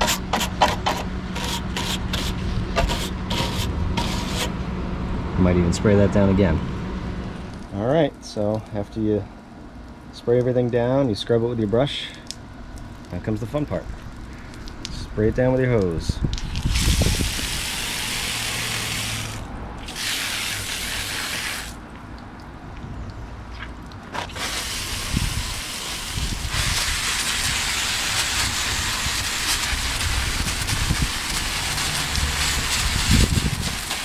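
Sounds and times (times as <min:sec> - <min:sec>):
hose nozzle spraying water: 0:16.3 - 0:21.8, 0:24.2 - 0:34.0.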